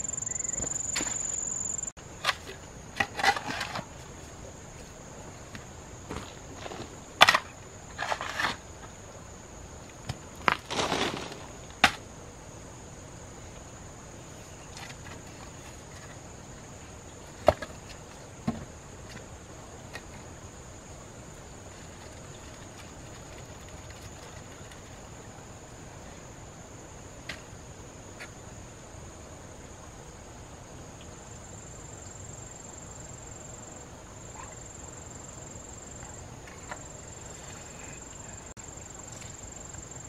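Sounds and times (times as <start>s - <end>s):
high-pitched insect drone: 0.0s - 1.9s
hoe scraping soil: 2.2s - 4.2s, 6.1s - 8.8s, 10.5s - 11.9s.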